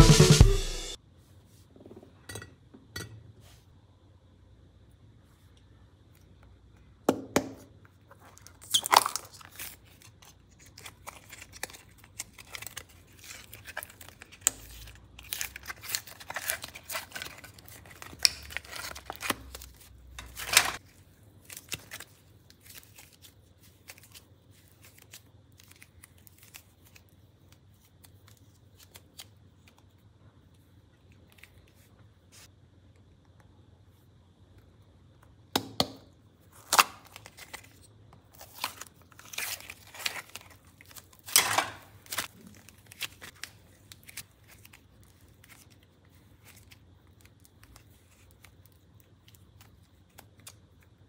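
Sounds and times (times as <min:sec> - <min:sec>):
plastic crinkling: 0:08.0 - 0:29.8, 0:36.4 - 0:51.0.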